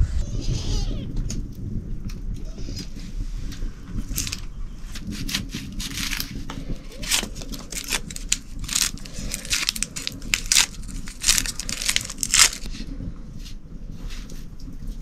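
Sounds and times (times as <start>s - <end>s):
knife peeling onion skin: 4.1s - 12.7s.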